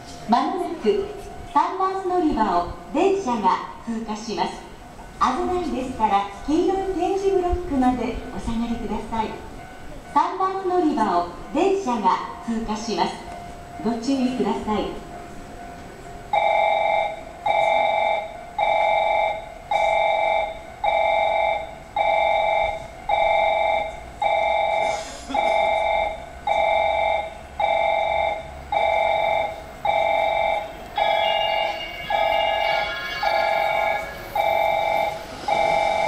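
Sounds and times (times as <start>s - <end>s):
higher warning tones: 11.3s - 36.0s
repeating electronic warning beep: 16.4s - 36.0s.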